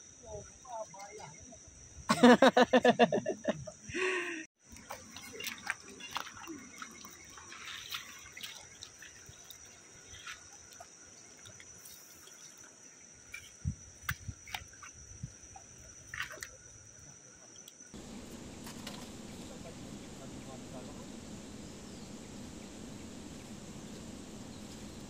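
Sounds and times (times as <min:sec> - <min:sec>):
water dripping and trickling: 0:04.6 - 0:12.7.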